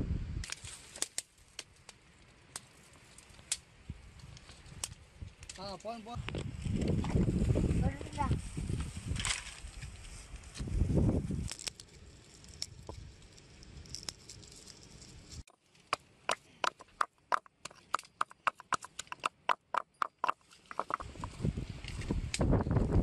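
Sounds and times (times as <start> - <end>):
stone pestle knocking in mortar: 15.9 - 21.1.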